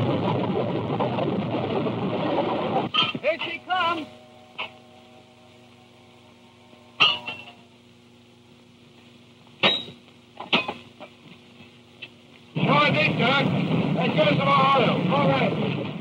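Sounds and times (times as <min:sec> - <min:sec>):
soundtrack hum: 0:00.0 - 0:08.8, 0:12.4 - 0:16.0
metal tools clanking on track: 0:07.0 - 0:07.6.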